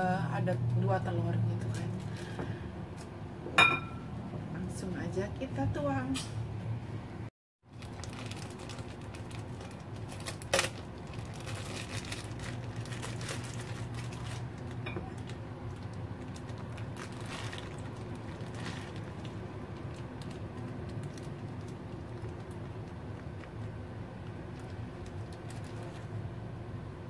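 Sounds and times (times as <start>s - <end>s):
plastic bag crinkling: 7.7s - 26.2s.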